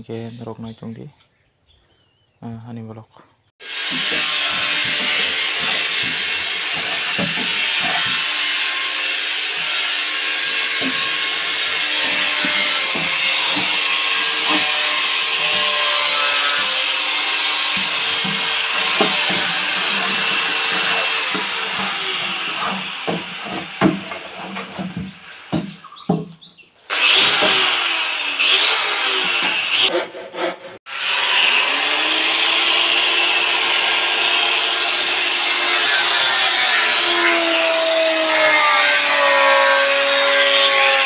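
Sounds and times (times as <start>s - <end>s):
electric hand planer whining: 3.6s - 25.5s, 26.9s - 29.9s, 30.9s - 41.0s
planer knocking on wood: 3.7s - 8.6s, 10.4s - 15.9s, 16.6s - 26.4s.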